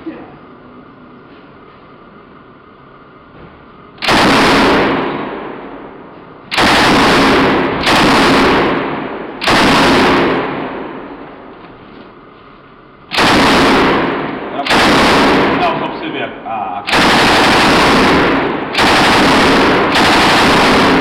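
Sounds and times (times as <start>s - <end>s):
machine gun automatic bursts: 4.0s - 5.2s, 6.5s - 10.8s, 13.1s - 16.1s, 16.8s - 21.0s.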